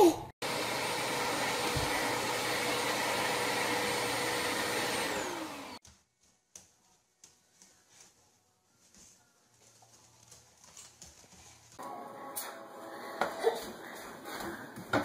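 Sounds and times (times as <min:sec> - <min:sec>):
vacuum cleaner motor: 0:00.4 - 0:05.8.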